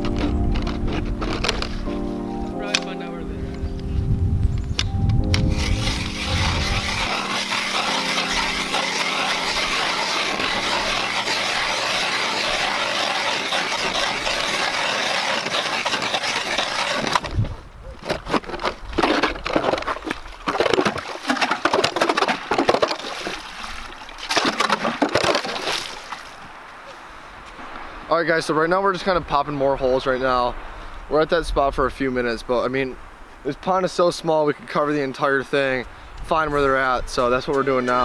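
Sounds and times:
ice auger boring: 0.0s - 1.8s, 5.4s - 17.4s, 24.2s - 25.8s
auger crunching and scraping ice: 0.0s - 2.1s, 5.3s - 26.4s
music: 0.0s - 11.8s.

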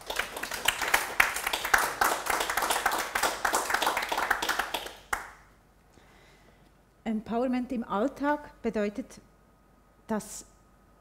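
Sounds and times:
small audience applauding: 0.0s - 5.5s.

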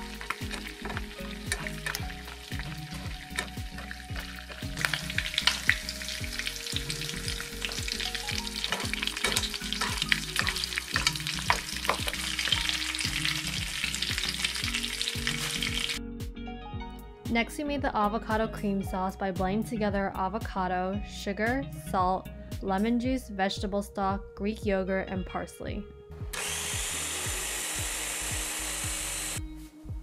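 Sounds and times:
fish sizzling in butter: 0.0s - 16.0s
metal spoon scraping a pan: 0.1s - 6.1s, 8.6s - 12.5s.

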